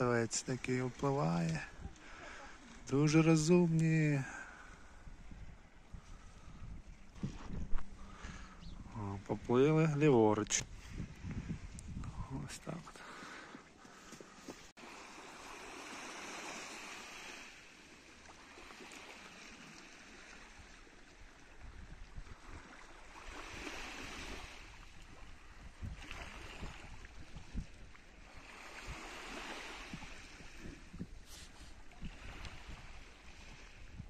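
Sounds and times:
sea waves washing in: 0:00.0 - 0:34.0
wind buffeting microphone: 0:01.5 - 0:02.9, 0:04.7 - 0:09.6, 0:10.3 - 0:13.2, 0:21.3 - 0:34.0.

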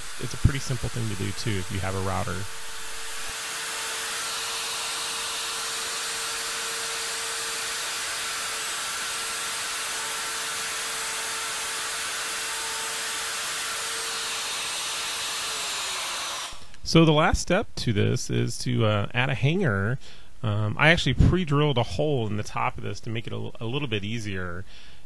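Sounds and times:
router routing wood: 0:00.0 - 0:16.8.

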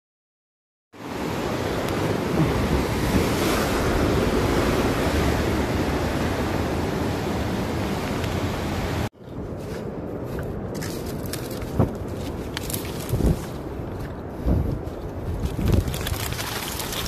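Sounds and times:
sea surf: 0:01.0 - 0:09.1
wind buffeting microphone: 0:01.1 - 0:17.0.

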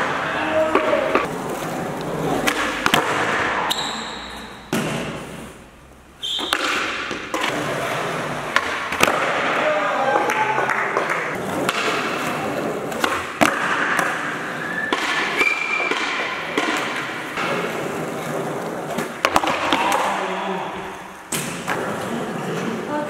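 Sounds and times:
skateboard wheels rolling: 0:00.0 - 0:03.6, 0:06.2 - 0:23.0
skateboard clacking on floor: 0:06.5 - 0:20.1.

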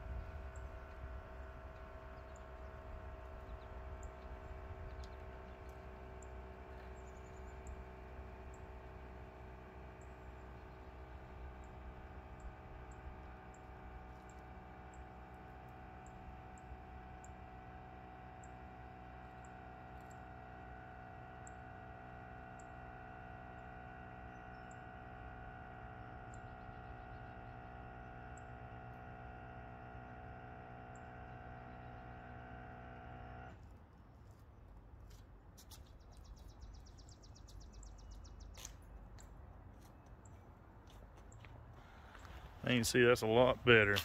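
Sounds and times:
footsteps: 0:43.7 - 0:44.0.

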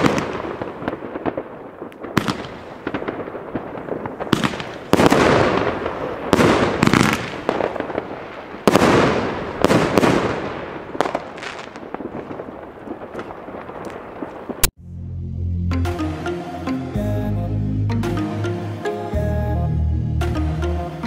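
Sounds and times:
firework bangs: 0:00.0 - 0:14.7.

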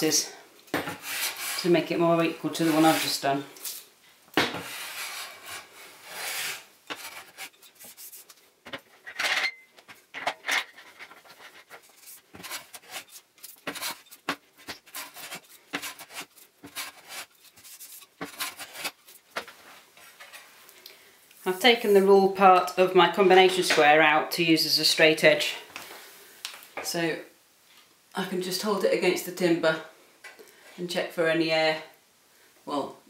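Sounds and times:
hand plane rasping on wood: 0:14.7 - 0:18.9.

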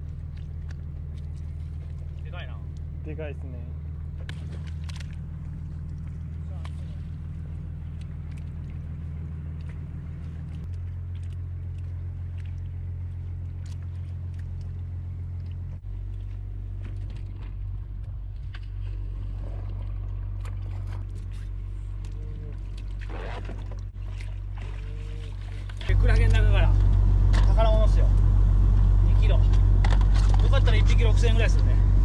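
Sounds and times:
boat engine humming: 0:00.0 - 0:32.0
wet fish clicking and knocking: 0:04.1 - 0:19.0.

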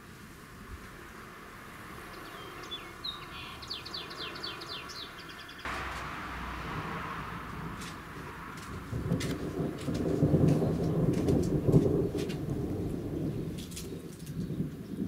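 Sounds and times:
songbird trilling: 0:02.1 - 0:05.7
rushing noise with low rumble: 0:05.7 - 0:14.4.

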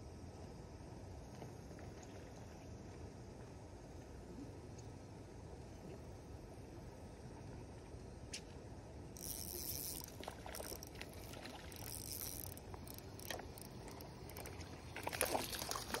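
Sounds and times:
spinning reel cranking: 0:09.2 - 0:14.5
reel clicks: 0:09.2 - 0:16.0.

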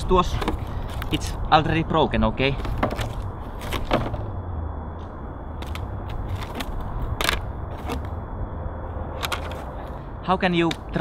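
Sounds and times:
low steady rumble: 0:00.0 - 0:11.0
cardboard and plastic packaging handled: 0:00.2 - 0:01.3, 0:02.6 - 0:04.3.

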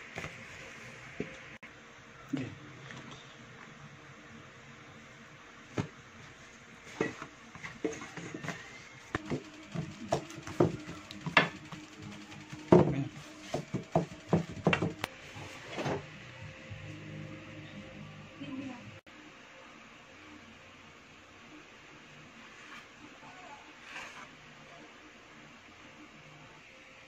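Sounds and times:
hands tapping dough in pan: 0:12.7 - 0:15.1.

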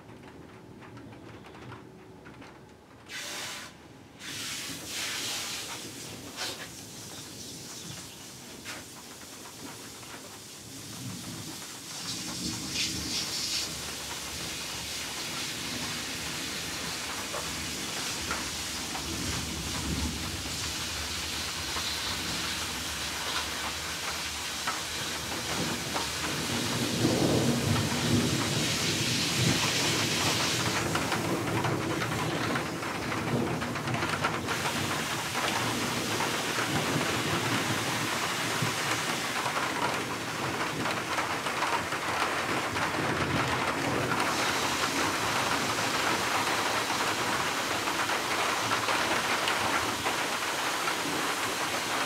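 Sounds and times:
heavy rain hissing: 0:03.1 - 0:52.0
thunder rumbling: 0:25.1 - 0:52.0.

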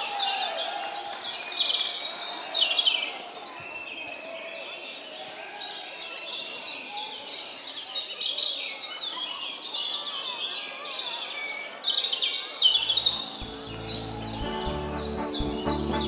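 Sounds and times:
birds chirping and twittering: 0:05.9 - 0:16.0
music with low bass line: 0:13.2 - 0:16.0.

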